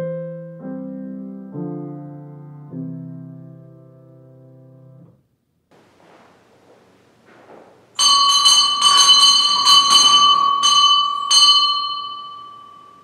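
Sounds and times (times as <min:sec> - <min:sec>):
bell ringing: 0:07.3 - 0:13.0.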